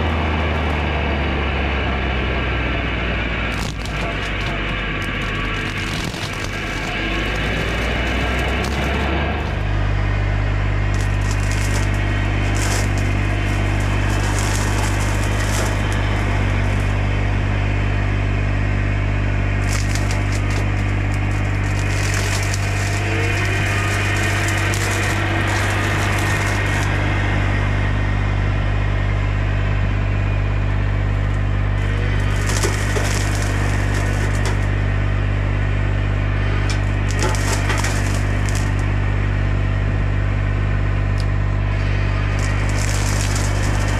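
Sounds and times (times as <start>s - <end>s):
crackling of branches: 0.0s - 1.2s, 1.9s - 43.9s
diesel engine at high revs: 0.0s - 43.9s
brush cutter chopping brush: 3.5s - 18.1s, 19.4s - 27.5s, 31.8s - 34.9s, 36.4s - 38.9s, 41.8s - 43.9s.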